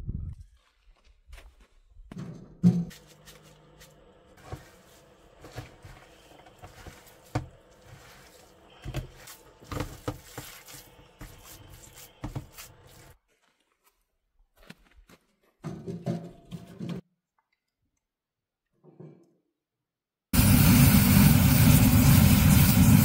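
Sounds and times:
hands squelching moist filling: 5.6s - 13.2s.

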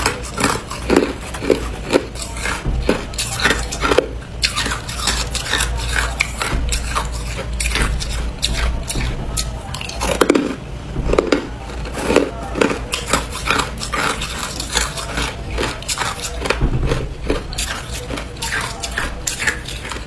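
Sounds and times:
crushed ice being chewed: 0.0s - 20.0s.

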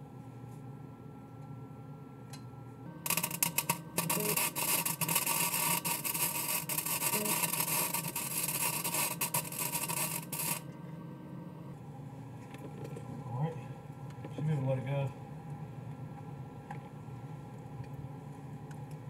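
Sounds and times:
welding arc crackling: 3.0s - 10.8s.

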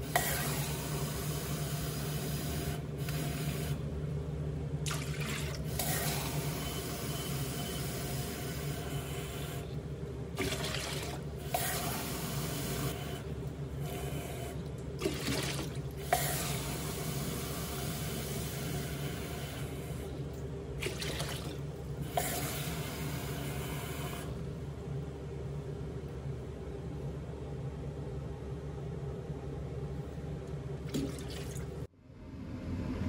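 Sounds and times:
low hum: 24.3s - 33.0s
water splashing into steel bowl: 30.9s - 31.7s.

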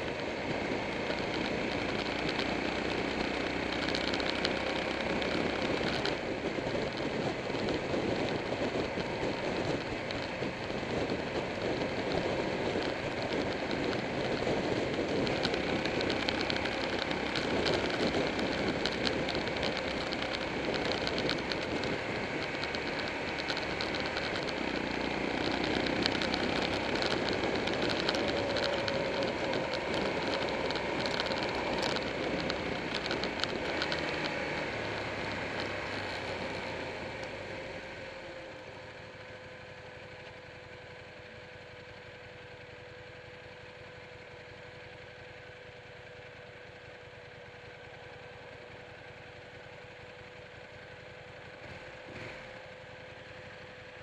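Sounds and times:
motorcycle engine: 0.0s - 54.0s
wind noise: 4.5s - 37.2s.

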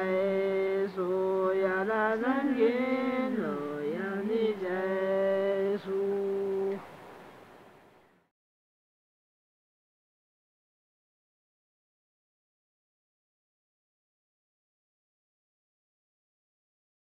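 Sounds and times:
person chanting a devotional song: 0.0s - 6.9s.

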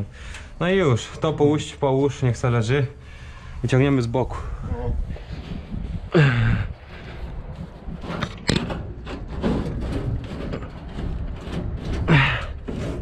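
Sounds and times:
metal knocking and scraping: 4.5s - 13.0s.

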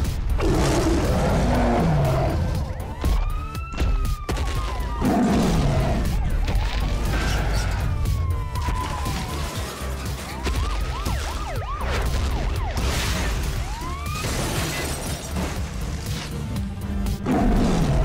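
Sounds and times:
cartoon police sirens: 1.4s - 15.0s
crashes and breaking sounds: 8.6s - 16.5s.

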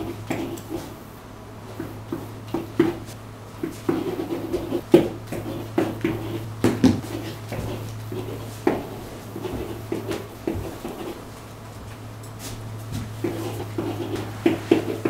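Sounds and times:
steady low hum: 0.0s - 15.0s
pen tapping and scratching on whiteboard: 1.8s - 3.0s, 3.6s - 11.2s, 13.2s - 15.0s.

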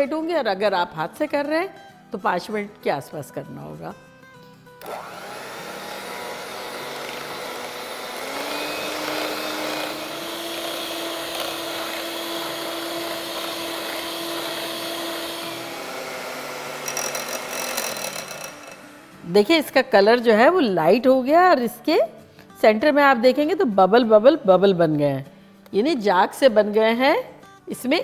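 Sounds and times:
electric hand mixer running: 4.8s - 19.3s.

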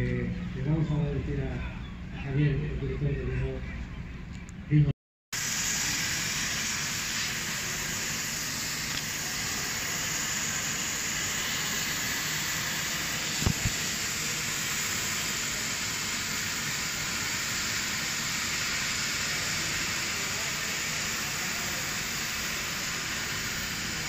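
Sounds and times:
cutting torch hissing: 5.4s - 24.0s.

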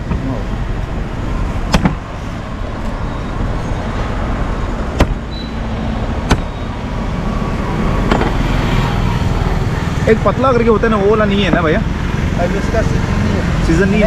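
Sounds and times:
road traffic: 0.0s - 14.0s
machete chopping coconut: 4.9s - 5.2s, 6.2s - 6.5s.

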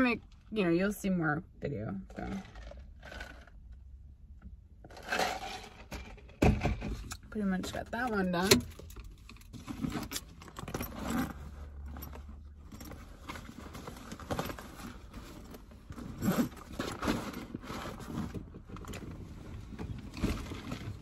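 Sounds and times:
fabric backpack rustling: 10.8s - 21.0s.

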